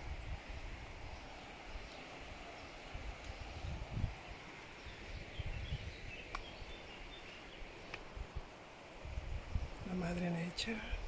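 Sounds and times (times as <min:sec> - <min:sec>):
steady hiss: 0:00.0 - 0:11.0
low rumbles on microphone: 0:02.9 - 0:06.8.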